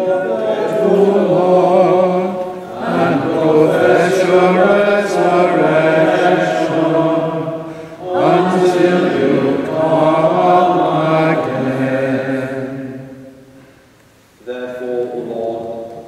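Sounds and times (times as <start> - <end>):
man chanting: 14.4 - 16.0.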